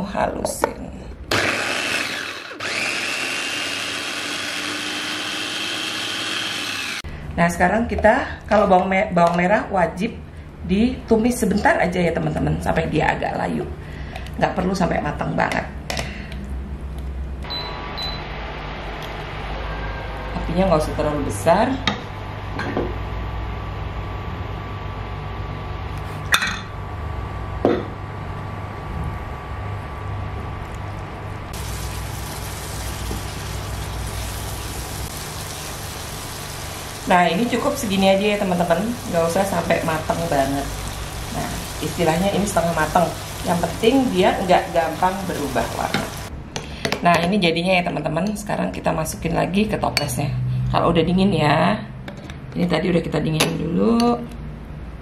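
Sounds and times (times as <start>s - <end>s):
electric food chopper whining: 1.3s - 7.1s, 31.6s - 46.3s.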